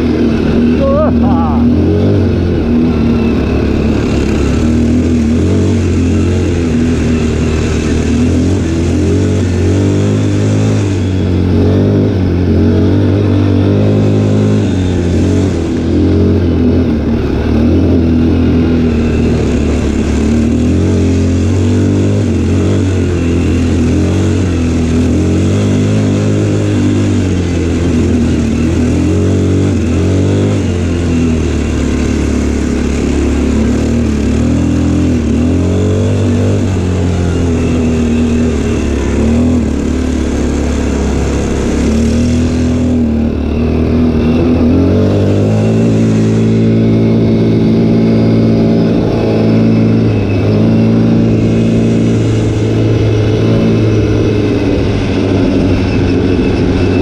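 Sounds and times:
quad bike engine revving: 0.0s - 57.0s.

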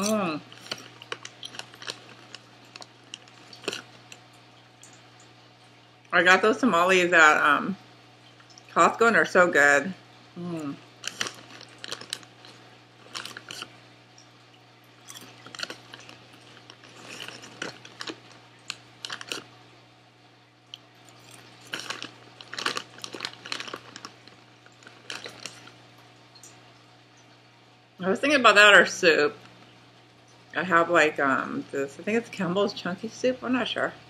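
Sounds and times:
crunching potato chips: 0.0s - 5.0s, 10.6s - 13.8s, 15.0s - 19.6s, 20.7s - 25.8s
foil bag crinkling: 0.0s - 5.0s, 10.5s - 13.9s, 15.0s - 19.6s, 21.0s - 25.9s.

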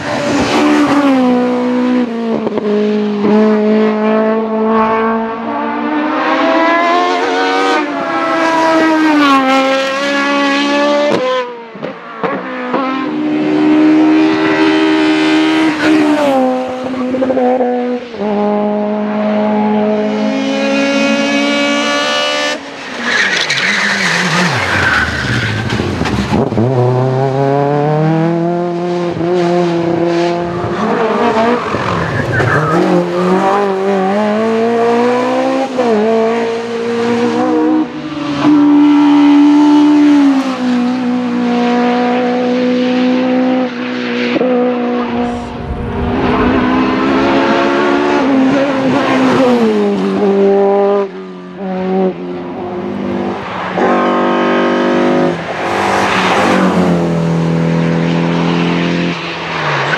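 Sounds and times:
race car engines at full throttle: 0.0s - 59.9s
tyre squeal: 22.8s - 25.8s.

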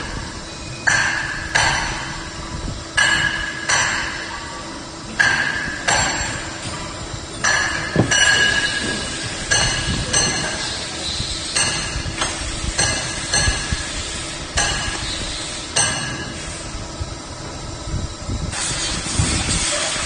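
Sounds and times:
sharp ringing metallic strikes: 7.4s - 10.7s.

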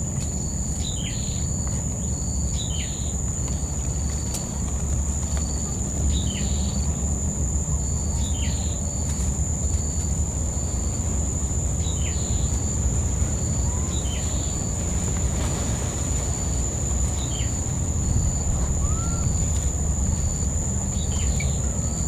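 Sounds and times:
low steady rumble: 0.0s - 22.0s
high-pitched insect drone: 16.3s - 22.0s.

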